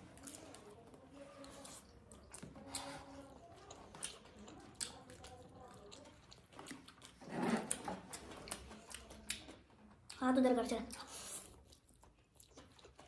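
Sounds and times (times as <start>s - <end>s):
chewing and noodle slurping: 0.1s - 9.5s.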